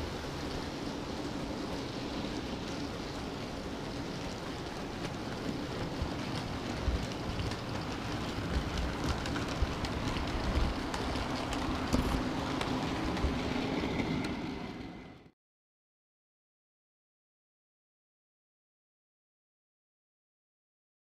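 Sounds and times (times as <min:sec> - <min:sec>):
model train wheels rattling: 0:00.1 - 0:15.0.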